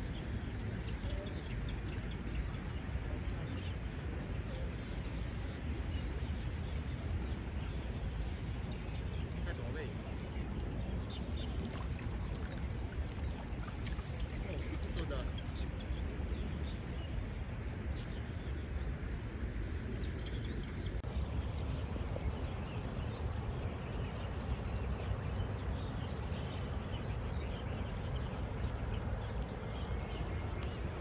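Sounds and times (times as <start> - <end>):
low rumbling water and air: 0.0 - 31.0
small splashes and ticks: 11.3 - 15.7, 20.4 - 31.0.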